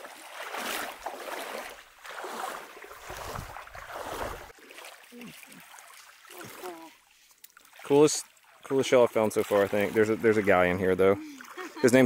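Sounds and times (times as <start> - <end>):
feet sloshing through shallow water: 0.0 - 12.0.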